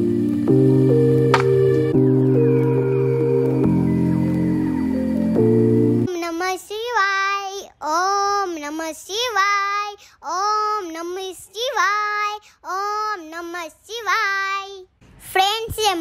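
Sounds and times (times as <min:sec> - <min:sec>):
child singing a chant: 0:06.1 - 0:16.0.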